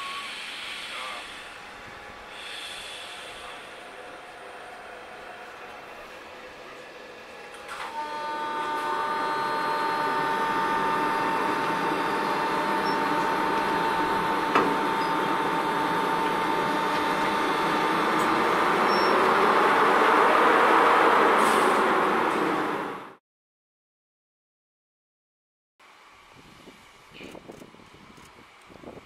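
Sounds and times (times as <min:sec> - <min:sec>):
rushing hiss: 0:00.0 - 0:04.2
locomotive machinery whine: 0:00.0 - 0:23.2.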